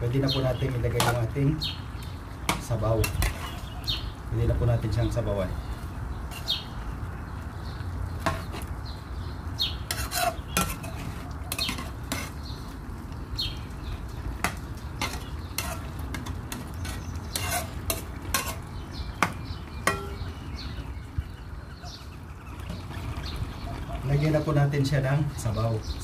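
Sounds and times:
spatula scraping metal pan: 2.5s - 3.7s, 6.3s - 6.7s, 9.8s - 12.4s, 14.5s - 18.7s.

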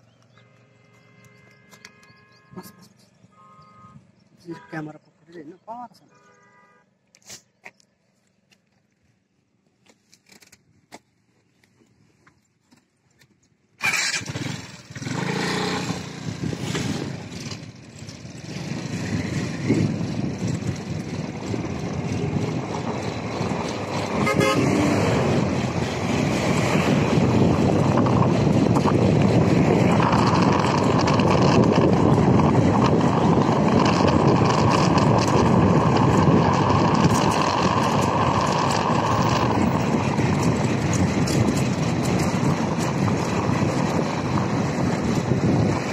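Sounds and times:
vehicles passing: 0.0s - 9.8s, 13.8s - 45.9s
horn honking: 0.4s - 4.9s, 6.0s - 7.0s, 23.9s - 25.4s.

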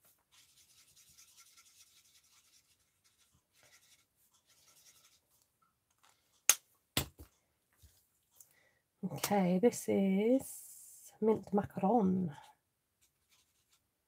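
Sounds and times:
marker rubbing on card: 0.3s - 5.2s, 13.1s - 13.8s.

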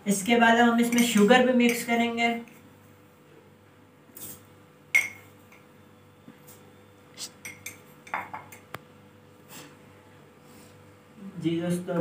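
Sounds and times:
glass clinks and taps: 4.9s - 5.7s, 7.4s - 8.7s.

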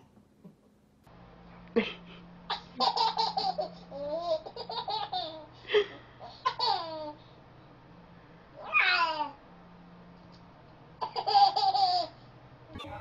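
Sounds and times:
baby laughing: 2.5s - 5.6s, 6.2s - 7.2s, 11.0s - 12.2s.

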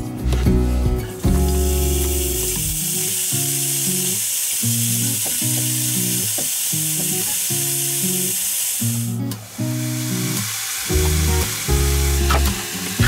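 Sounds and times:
background music: 0.0s - 2.9s, 9.0s - 13.0s
bacon sizzling in a pan: 1.2s - 13.0s.

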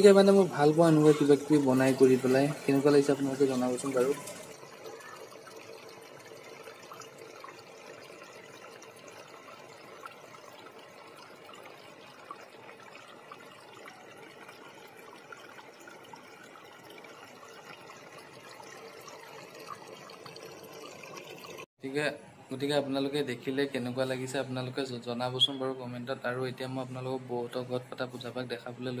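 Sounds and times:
water trickling: 0.0s - 21.7s.

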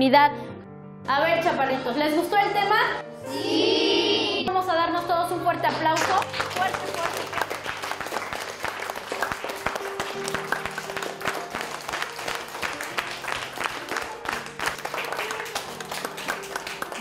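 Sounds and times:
background music: 0.0s - 17.0s
children clapping: 5.7s - 17.0s.

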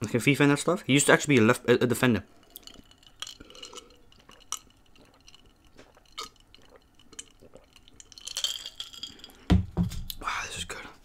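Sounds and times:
ice clinking in glass: 2.5s - 9.5s.

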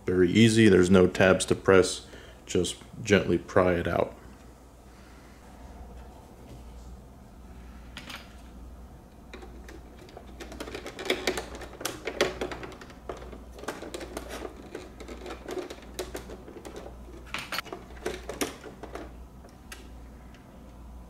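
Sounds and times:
plastic clicks and scrapes: 9.3s - 19.1s.

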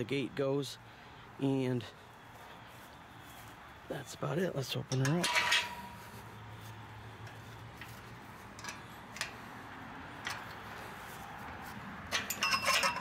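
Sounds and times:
chain link gate fittings clinking: 4.6s - 6.2s, 7.2s - 9.4s, 10.2s - 10.8s, 12.0s - 13.0s
metal clanks ringing: 4.7s - 6.2s, 12.0s - 13.0s.

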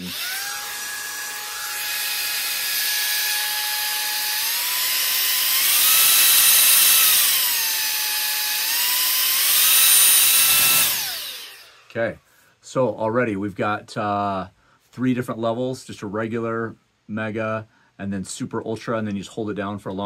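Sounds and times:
stick vacuum motor whining: 0.0s - 11.9s.

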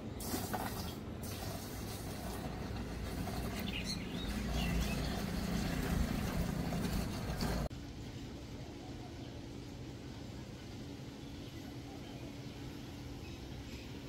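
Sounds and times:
liquid pouring into plastic drum: 0.2s - 7.7s.

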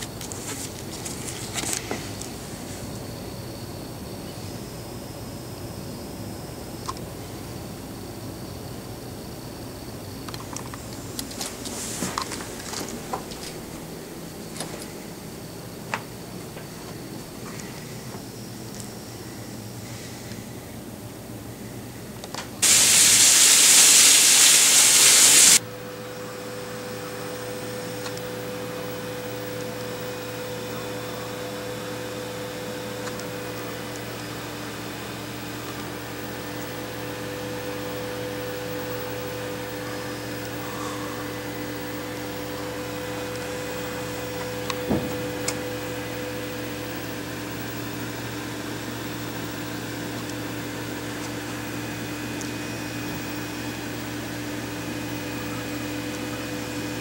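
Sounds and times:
machine humming with steady tones: 0.0s - 57.0s
loud hiss: 22.6s - 25.6s.

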